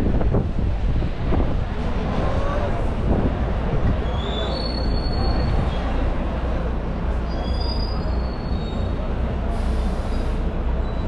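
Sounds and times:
moving bus rumbling: 0.0 - 11.0
faint high squeaks: 4.0 - 6.0, 7.2 - 9.0, 10.8 - 11.0.

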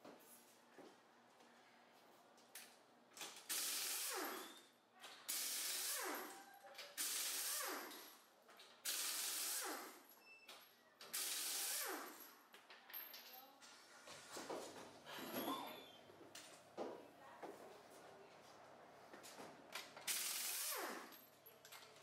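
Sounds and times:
pneumatic impact wrench bursts: 3.3 - 4.7, 5.3 - 8.1, 8.8 - 10.1, 11.1 - 12.3, 20.0 - 21.2.

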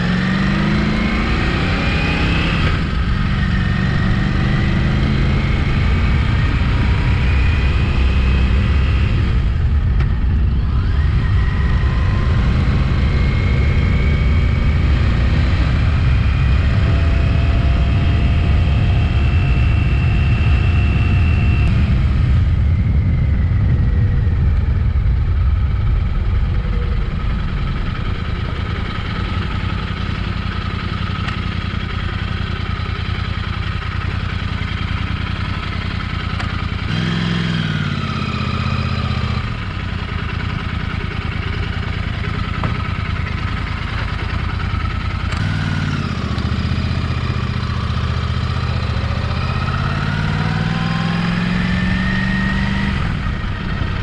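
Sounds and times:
motorcycle engine running: 0.0 - 54.0
wind rush on microphone: 1.6 - 29.6.

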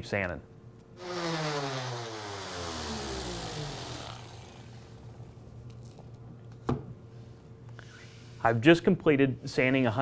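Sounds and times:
sander winding down: 1.0 - 5.0.

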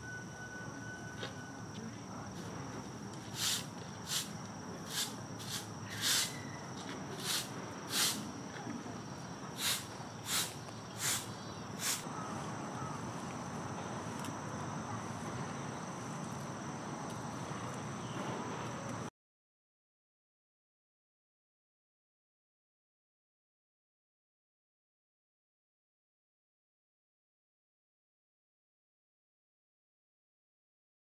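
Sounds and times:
high-pitched insect drone: 0.0 - 18.9
short sharp hisses: 3.3 - 4.3, 4.9 - 6.4, 7.2 - 8.3, 9.6 - 12.0.

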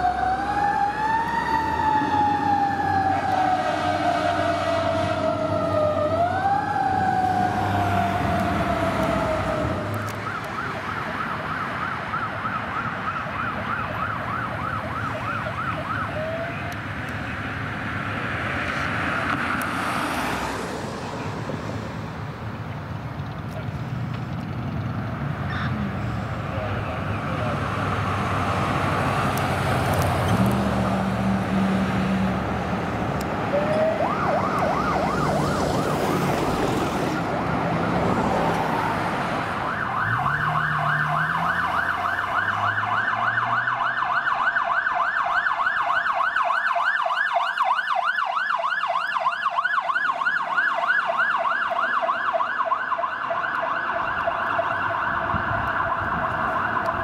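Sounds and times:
fast yelp siren: 0.0 - 16.8, 33.4 - 57.0
electronic siren wailing: 0.0 - 16.9, 33.4 - 57.0
traffic: 0.0 - 57.0.

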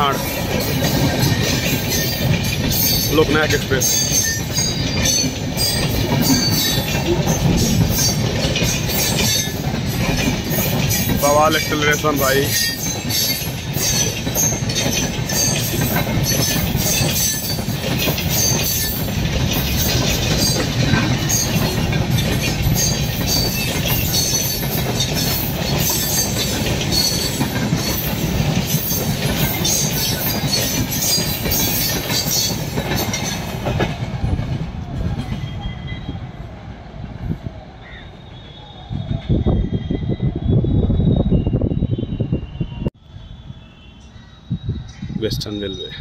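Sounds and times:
wheels clattering over rail joints: 0.0 - 35.4
train wheels rumbling: 0.0 - 46.0.

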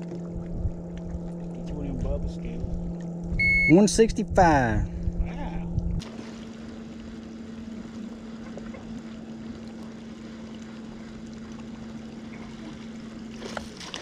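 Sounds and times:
electric trolling motor humming: 5.1 - 14.0.

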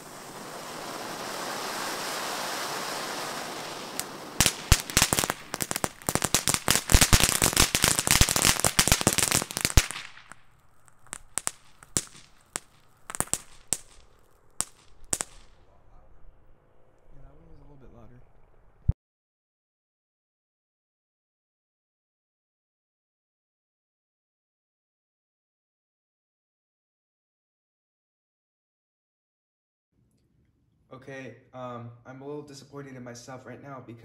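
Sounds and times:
firework hissing and crackling: 0.0 - 15.7.

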